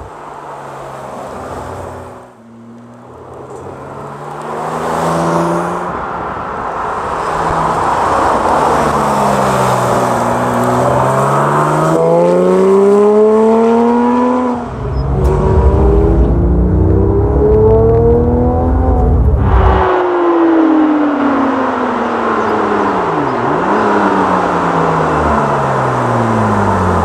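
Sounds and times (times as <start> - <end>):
sports car engine driving past: 8.6 - 25.2.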